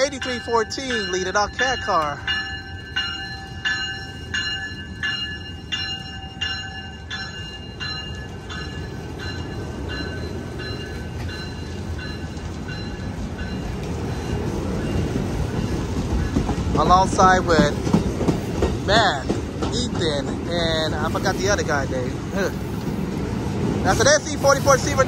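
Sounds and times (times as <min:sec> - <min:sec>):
bell ringing: 0:00.0 - 0:15.0
train cars rolling past: 0:00.0 - 0:25.0.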